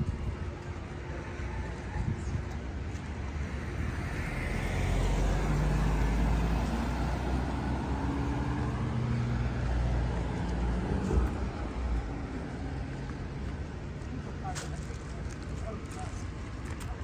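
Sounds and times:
car driving past: 0:03.6 - 0:13.1.

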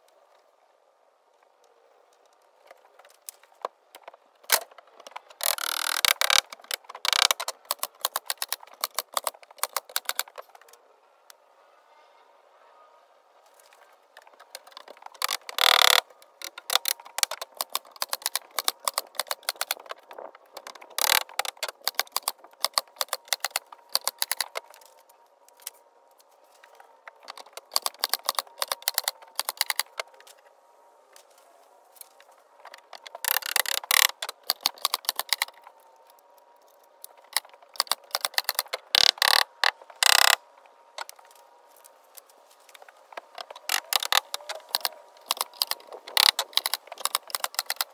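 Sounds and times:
rapid clicks on wooden boards: 0:02.3 - 0:10.7, 0:14.1 - 0:25.0, 0:26.6 - 0:30.5, 0:32.0 - 0:35.8, 0:37.0 - 0:41.9, 0:42.7 - 0:47.9.

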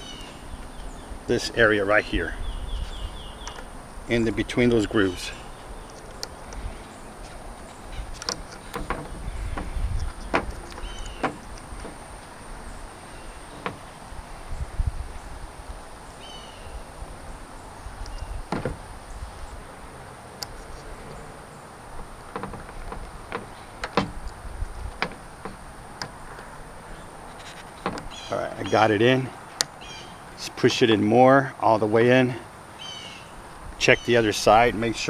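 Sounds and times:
bird calling: 0:00.0 - 0:30.4, 0:32.7 - 0:34.6
small plastic clicks: 0:08.0 - 0:12.3.

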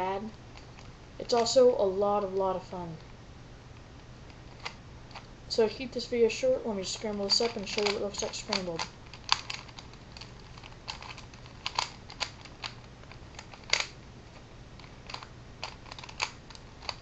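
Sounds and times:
puzzle cube clicking and clacking: 0:00.6 - 0:01.6, 0:06.8 - 0:17.0.

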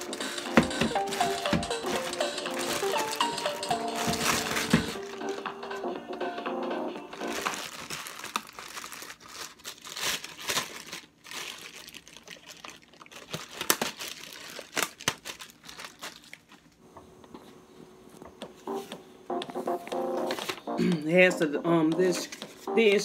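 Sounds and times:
plastic bag crinkling: 0:00.0 - 0:05.5, 0:07.2 - 0:16.8.

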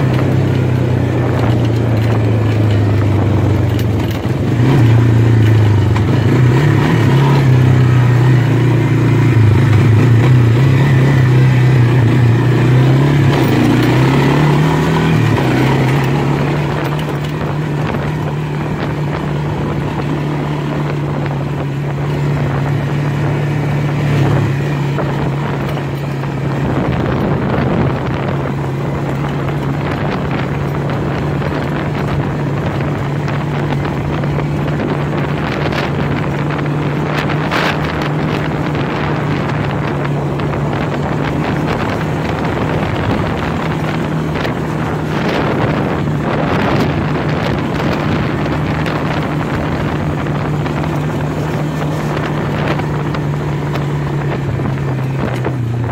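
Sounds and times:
quad bike engine running: 0:00.0 - 0:55.9.

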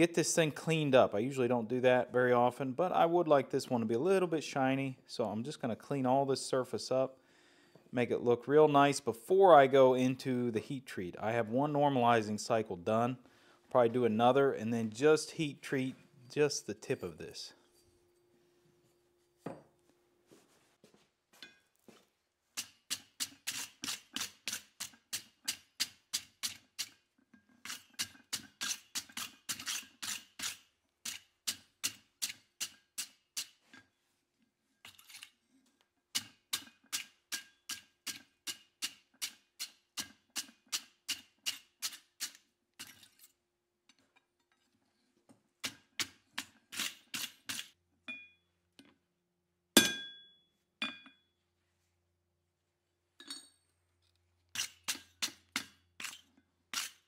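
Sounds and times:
anvil ringing: 0:49.8 - 0:51.1
hammer striking hot steel on anvil: 0:49.8 - 0:51.1.

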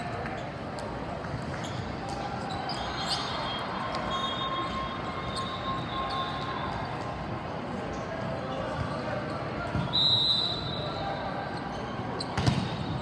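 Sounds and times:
echoing sports hall din: 0:00.0 - 0:13.0
volleyballs hit and bouncing: 0:12.2 - 0:13.0.

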